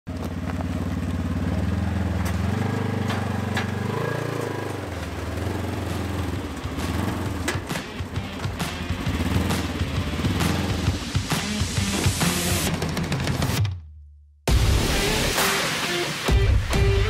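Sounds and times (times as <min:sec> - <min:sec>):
vehicle engine running: 0:00.1 - 0:13.6.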